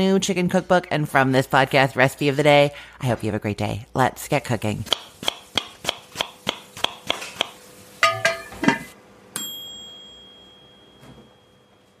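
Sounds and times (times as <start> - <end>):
knife chopping strikes: 4.9 - 8.7
bright ding: 9.4 - 12.0.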